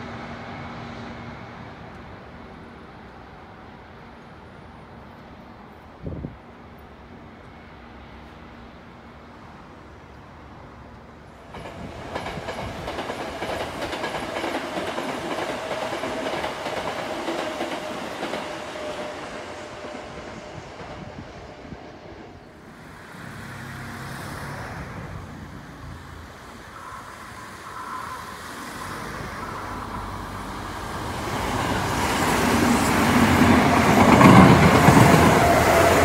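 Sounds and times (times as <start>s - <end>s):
electric train passing: 0.0s - 36.0s
wind: 0.0s - 36.0s
train wheels clattering over rail joints: 11.5s - 19.9s, 31.8s - 36.0s.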